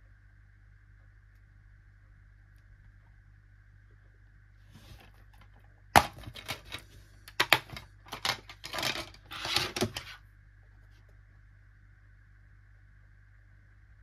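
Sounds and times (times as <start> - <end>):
plastic clicks and rattles: 5.4 - 10.1.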